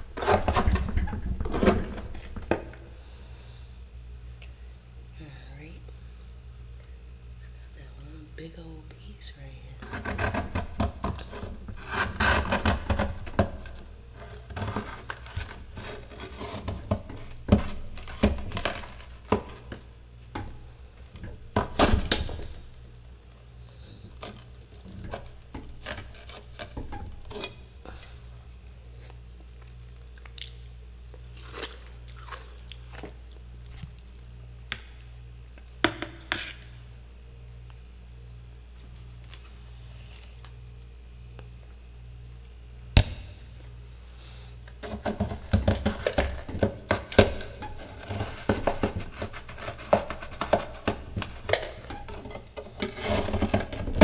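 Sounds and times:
metal spatula scraping frost: 0.0 - 2.1, 9.8 - 19.8, 47.0 - 54.0
low steady hum: 0.0 - 54.0.

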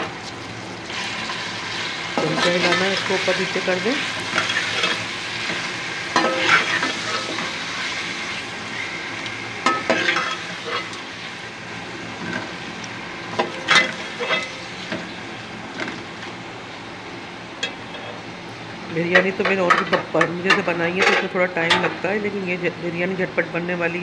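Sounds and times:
chicken sizzling in hot oil: 0.0 - 17.4.

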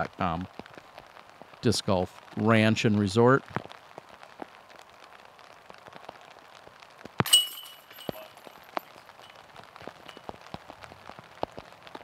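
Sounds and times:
rain pattering: 0.0 - 12.0
disc striking basket chains: 7.3 - 9.3.

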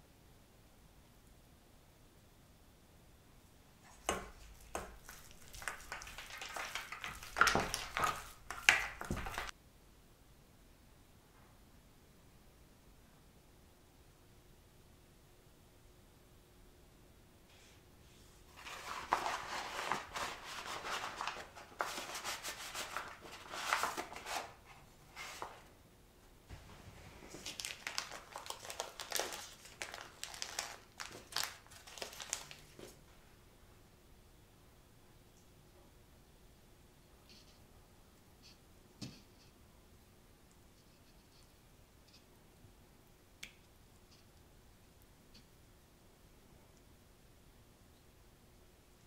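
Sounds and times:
paper packaging rustling: 3.8 - 9.5, 18.5 - 25.7, 26.5 - 33.0
spatula mashing meat in bowl: 3.9 - 9.5.

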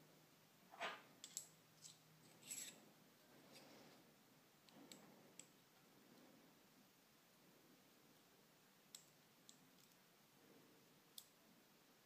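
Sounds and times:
metal scrape: 2.3 - 2.8.

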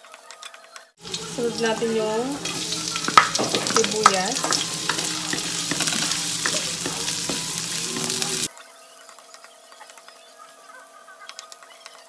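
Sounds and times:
onions sizzling in hot oil: 1.0 - 8.5
spatula scraping metal wok: 1.0 - 8.5.

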